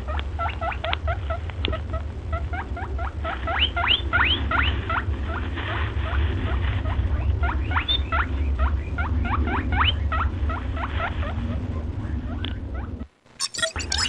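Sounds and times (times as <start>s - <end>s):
steady low hum: 0.0s - 14.0s
small animal squeaking: 0.1s - 5.4s, 6.8s - 14.0s.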